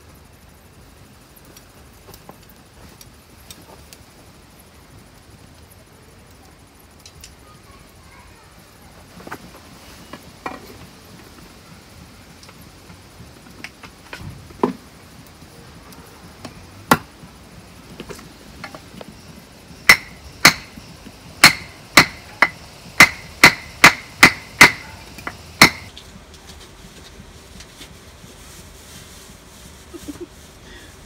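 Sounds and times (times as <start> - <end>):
sharp ringing hammer knocks: 19.9 - 20.7, 25.6 - 25.9.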